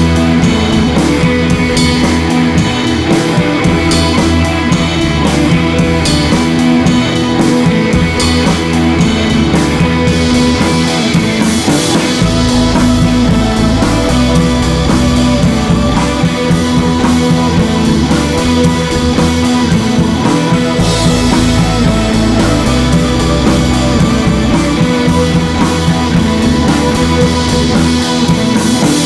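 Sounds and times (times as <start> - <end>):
loud rock music: 0.0 - 29.0.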